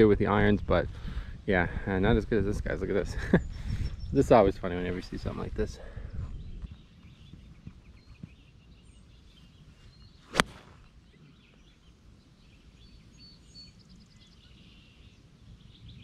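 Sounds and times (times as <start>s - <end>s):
wind rumble on microphone: 0.0s - 11.8s, 12.4s - 16.0s
birds chirping faintly: 0.0s - 16.0s
golf club striking ball: 10.3s - 10.9s.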